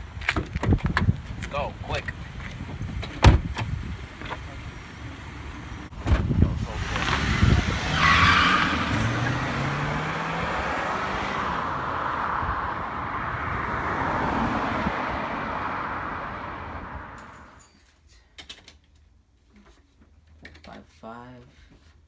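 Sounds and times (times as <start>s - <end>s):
car driving away: 3.6s - 17.6s.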